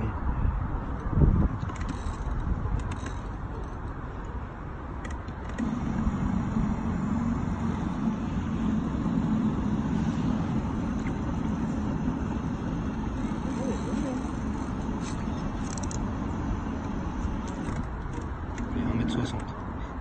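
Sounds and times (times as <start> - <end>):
outdoor background noise: 0.0 - 20.0
low motor hum: 5.5 - 19.5.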